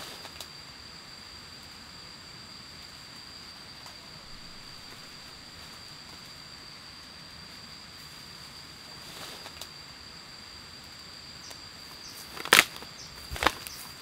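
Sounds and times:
brushing through undergrowth: 11.9s - 14.0s
footsteps crunching through leaves: 12.0s - 14.0s.

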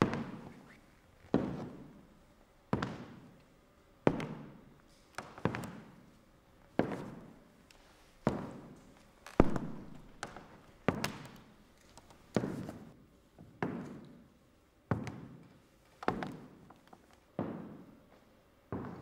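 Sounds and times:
footsteps on wooden floor: 5.2s - 5.8s, 6.8s - 7.3s, 8.2s - 13.9s, 16.0s - 19.0s.

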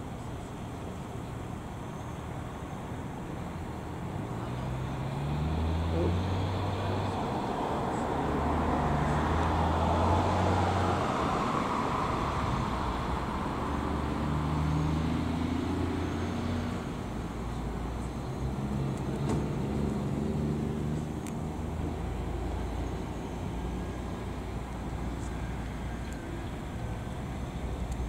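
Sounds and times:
low engine hum: 0.0s - 28.0s
vehicle passing by: 4.3s - 27.9s.

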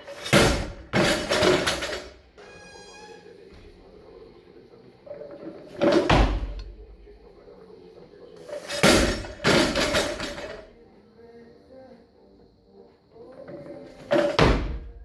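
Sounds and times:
barbell dropped on rubber floor: 14.1s - 14.9s
feet landing thud: 14.4s - 14.9s.

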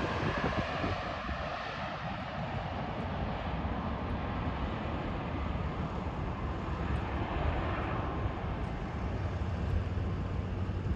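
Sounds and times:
jet airliner engines rumbling: 0.0s - 10.9s.

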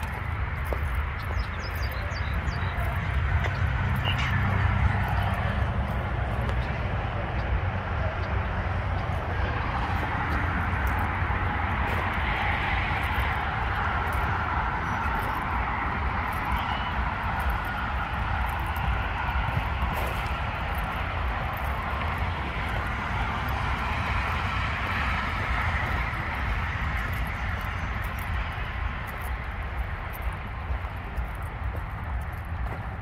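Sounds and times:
road traffic hiss and rumble: 0.0s - 33.0s.

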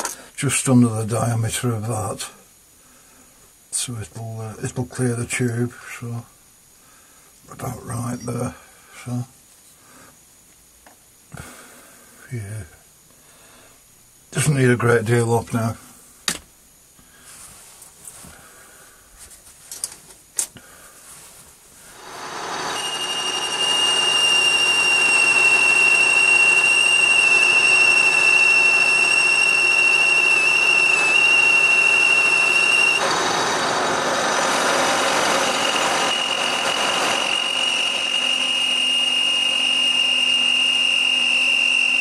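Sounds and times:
lathe whining: 21.9s - 42.0s
rough cutting noise: 22.0s - 26.6s, 31.8s - 41.9s.

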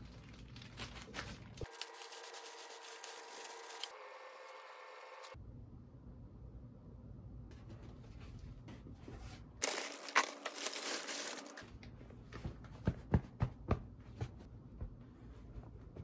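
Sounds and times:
plastic wrapping crinkling: 0.0s - 3.9s, 9.6s - 11.8s
rustling: 7.6s - 11.8s.

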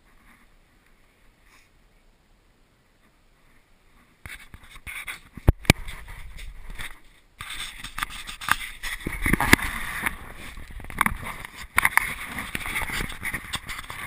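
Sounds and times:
fingers rubbing over microphone: 3.5s - 14.0s.

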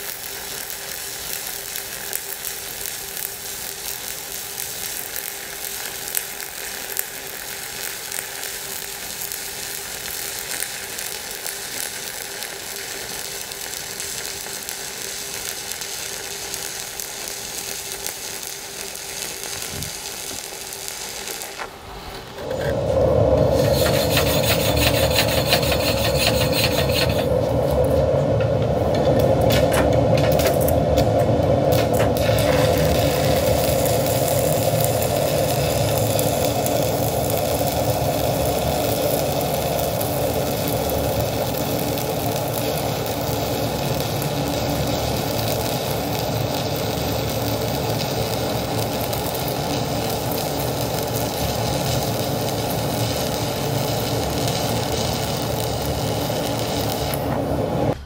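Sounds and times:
welding arc crackling sizzle: 0.0s - 58.0s
low hum: 21.6s - 38.8s.

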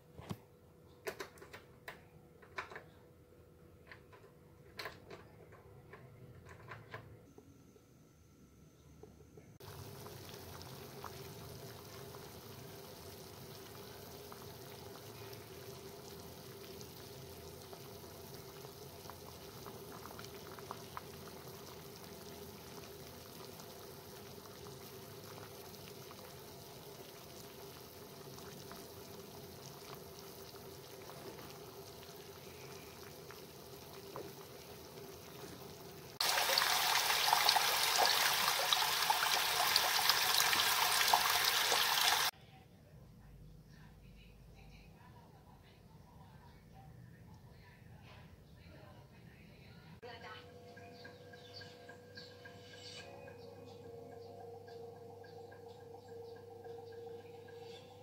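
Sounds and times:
thin hum: 6.9s - 10.4s
water boiling and bubbling: 9.6s - 42.3s.

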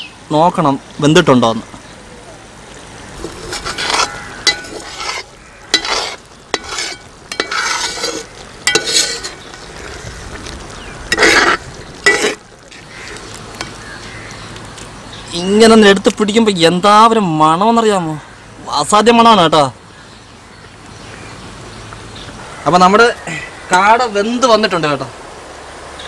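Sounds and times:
metal spoon scraping a pot: 3.2s - 10.1s, 11.1s - 13.8s.

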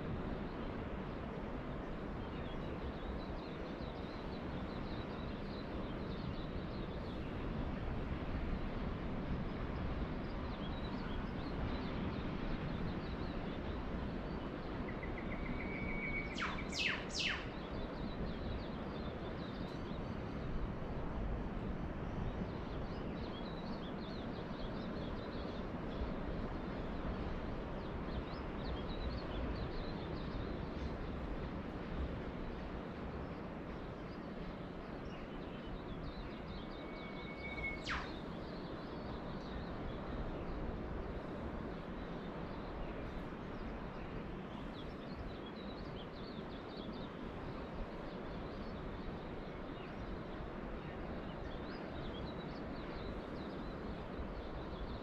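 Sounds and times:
faint bird chirps: 14.9s - 18.2s, 35.1s - 39.8s
bird sharp sweeping calls: 15.1s - 17.5s, 36.8s - 38.2s.

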